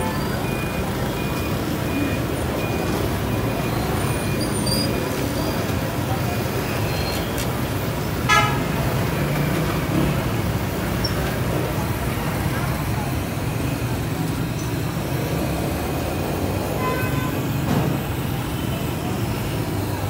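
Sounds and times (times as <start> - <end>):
passing vehicles rumble: 0.0 - 20.0.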